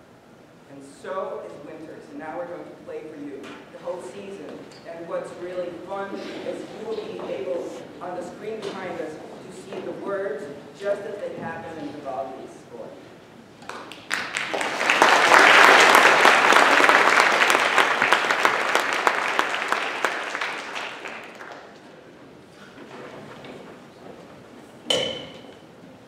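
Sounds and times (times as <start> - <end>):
audience applauding: 13.6 - 22.0.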